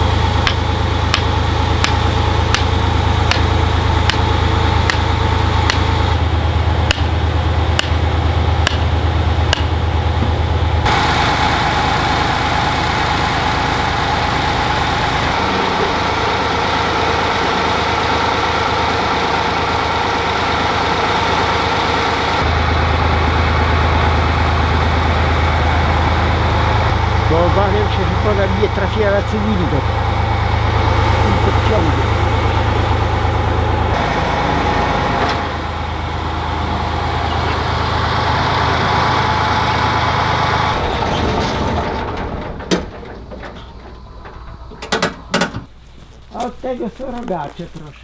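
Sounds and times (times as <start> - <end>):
excavator diesel engine running: 0.0 - 48.0
sharp ding-like ticks: 0.5 - 3.5, 4.1 - 5.1, 5.7 - 10.0.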